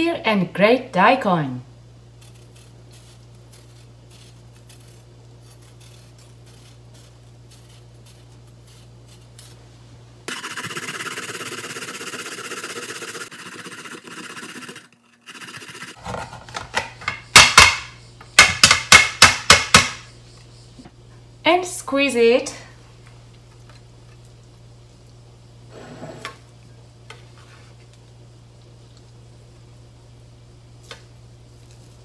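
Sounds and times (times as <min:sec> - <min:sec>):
knife peeling scrapes: 0:02.2 - 0:16.2
radish rasping on plastic grater: 0:10.3 - 0:16.0.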